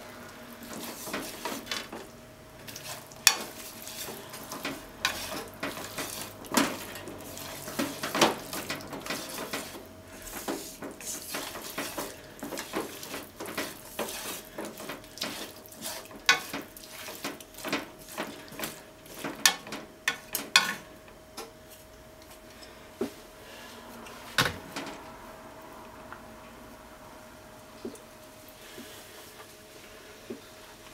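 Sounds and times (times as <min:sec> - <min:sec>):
chopsticks scraping a pan: 0:00.6 - 0:20.8
food sizzling in a pan: 0:00.6 - 0:20.8.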